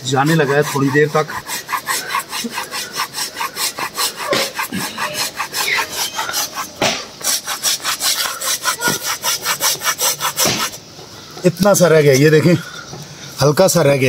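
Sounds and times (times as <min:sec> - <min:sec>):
hand saw cutting tree trunk: 0:00.0 - 0:10.8.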